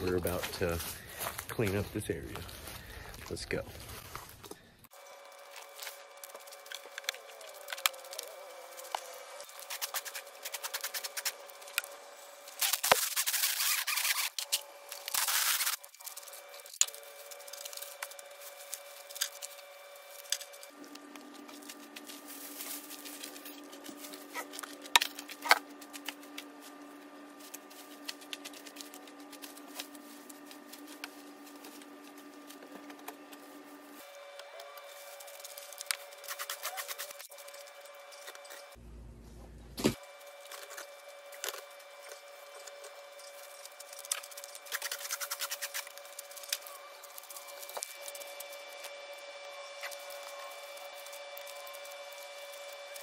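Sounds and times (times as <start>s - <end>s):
steady hum: 0.0s - 53.0s
rustling foliage: 5.0s - 38.7s.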